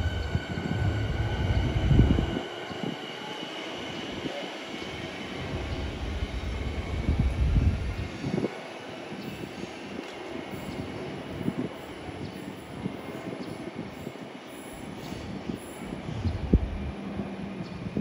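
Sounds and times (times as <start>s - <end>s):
wind rumble on microphone: 0.0s - 3.0s, 5.4s - 9.6s, 14.8s - 18.0s
electric train whine: 0.0s - 18.0s.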